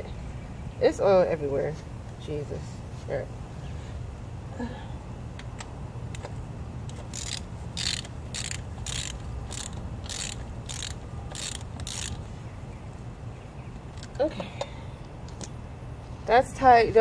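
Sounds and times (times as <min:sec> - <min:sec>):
ratchet wrench clicking: 0:06.9 - 0:12.3.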